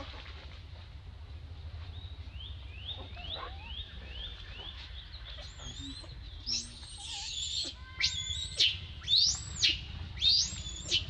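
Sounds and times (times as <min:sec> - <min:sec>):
constant low rumble: 0:00.0 - 0:11.0
high rising animal chirps: 0:05.7 - 0:11.0.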